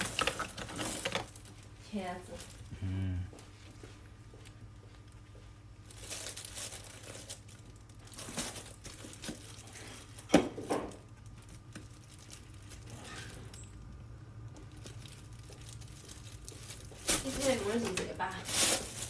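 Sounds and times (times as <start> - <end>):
plastic bag rustling: 0.0 - 2.7, 5.8 - 13.7, 14.5 - 19.0
faint low hum: 0.0 - 10.3.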